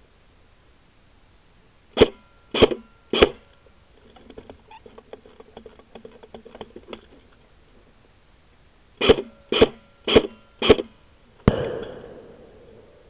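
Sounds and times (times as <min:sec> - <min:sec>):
airsoft rifle shots: 0:02.0 - 0:03.5, 0:09.0 - 0:13.0.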